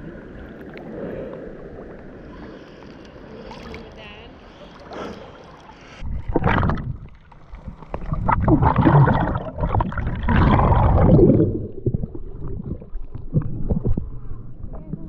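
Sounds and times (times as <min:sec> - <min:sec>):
water sloshing and gurgling: 0:00.0 - 0:15.0
muffled underwater rumbling: 0:05.2 - 0:15.0
splash: 0:06.2 - 0:13.9.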